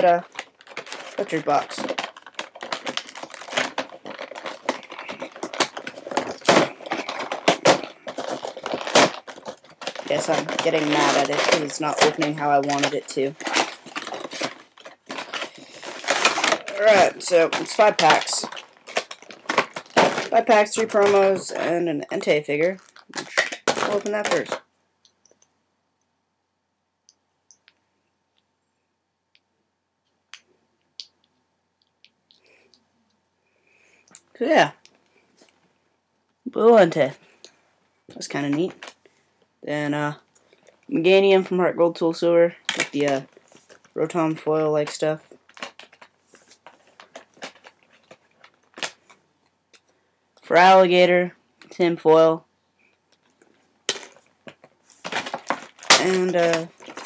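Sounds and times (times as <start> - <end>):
plastic packaging clicking: 0.0 - 25.5, 42.6 - 44.0, 44.9 - 49.9, 53.1 - 57.0.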